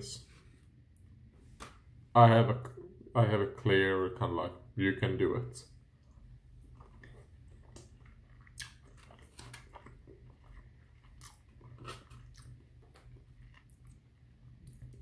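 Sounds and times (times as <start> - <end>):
person chewing and biting food: 6.1 - 15.0.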